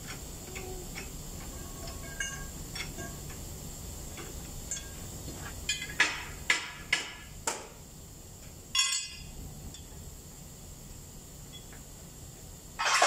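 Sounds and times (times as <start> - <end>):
ringing metal clank: 1.5 - 3.2, 8.8 - 9.3.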